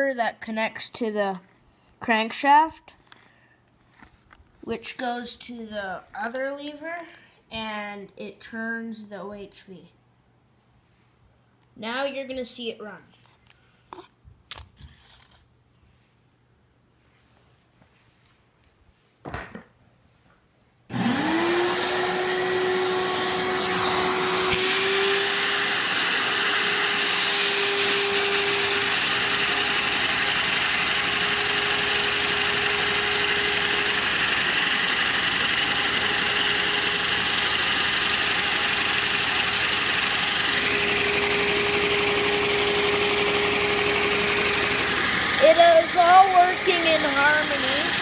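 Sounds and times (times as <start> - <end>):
vacuum cleaner running: 20.9 - 48.0.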